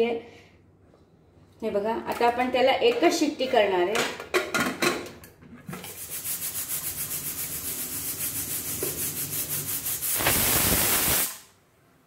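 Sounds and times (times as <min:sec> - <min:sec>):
pressure cooker valve hissing: 0:09.6 - 0:11.5.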